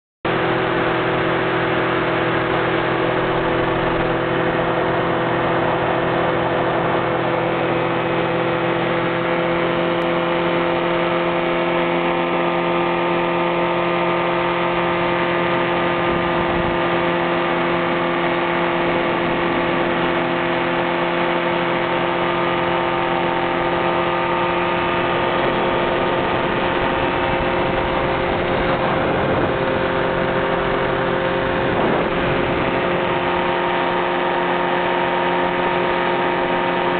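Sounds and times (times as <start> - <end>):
engine and propeller drone: 0.2 - 36.9
wind noise: 15.5 - 36.4.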